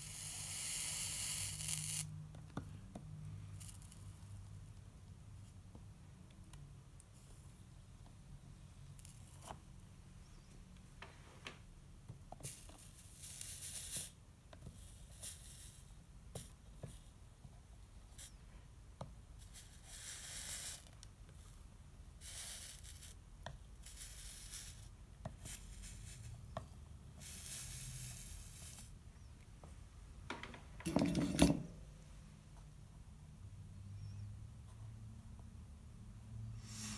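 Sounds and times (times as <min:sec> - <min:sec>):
soldering iron sizzling: 0:00.0 - 0:02.1.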